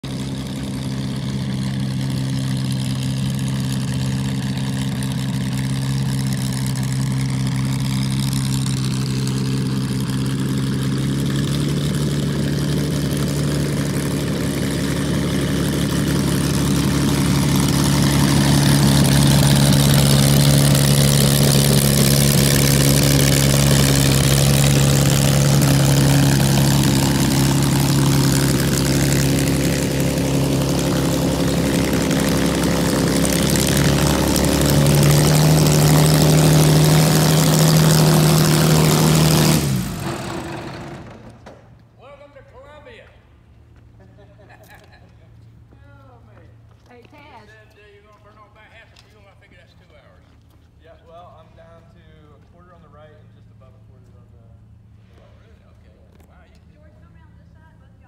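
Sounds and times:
plane engine idling: 0.0 - 41.9
propeller noise: 0.0 - 42.0.

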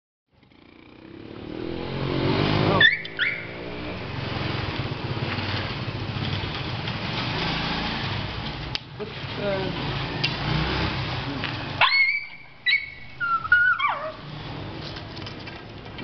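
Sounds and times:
vehicle engine revving: 0.4 - 15.3.

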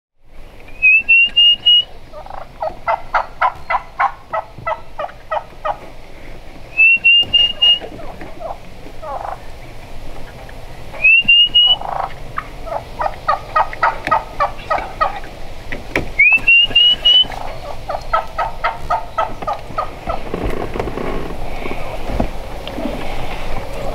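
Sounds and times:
high rising whistle: 0.7 - 2.0, 6.7 - 7.9, 11.0 - 11.9, 16.2 - 17.6
turkey hen yelping: 0.7 - 5.9, 6.7 - 15.4, 16.1 - 20.2.

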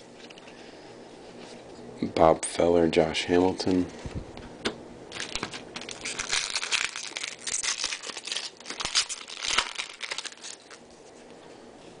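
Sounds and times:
foil wrapper crinkling: 5.1 - 11.2.

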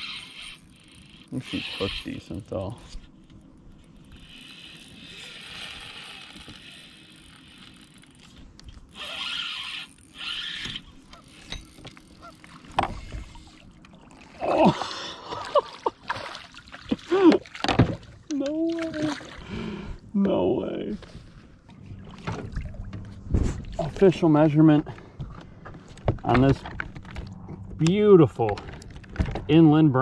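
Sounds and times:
fishing reel whirring: 0.0 - 14.7
water splashing: 12.2 - 19.5.

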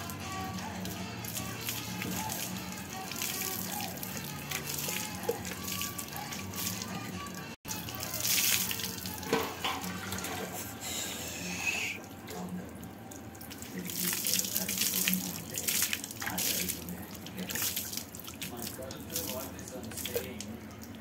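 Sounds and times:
water splashing and running: 0.0 - 10.8, 12.0 - 21.0
music playing: 0.0 - 12.0.

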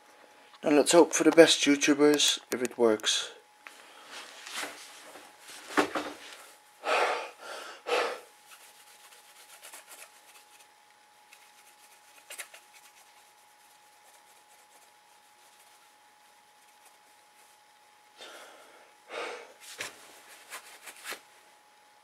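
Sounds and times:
disc drive whine: 1.3 - 6.8
rubbing noises: 8.4 - 17.7.

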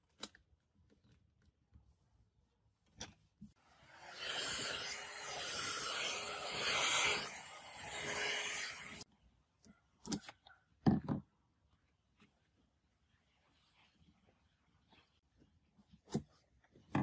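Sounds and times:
heat gun blowing hiss: 3.9 - 9.0.

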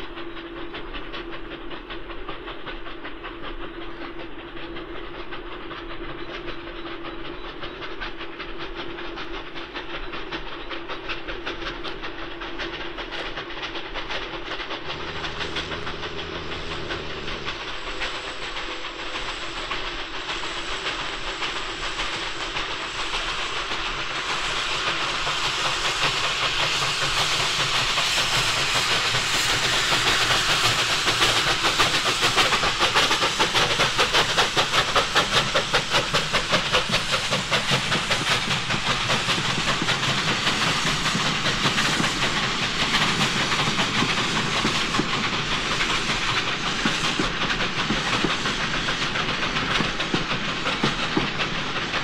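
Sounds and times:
steam locomotive exhaust beats: 0.0 - 52.0
low raspberry noise from engine: 14.7 - 18.8.

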